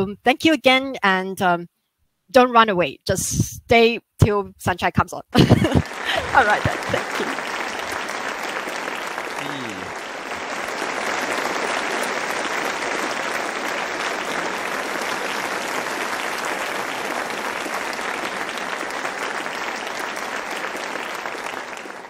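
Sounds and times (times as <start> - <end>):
applause: 5.4 - 22.0.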